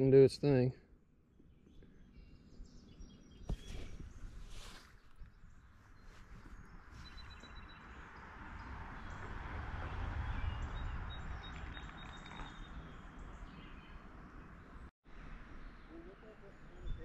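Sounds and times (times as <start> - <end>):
faint bird chirps: 1.4 - 8.0, 10.2 - 14.9
wind rumble on microphone: 6.0 - 15.8, 16.4 - 17.0.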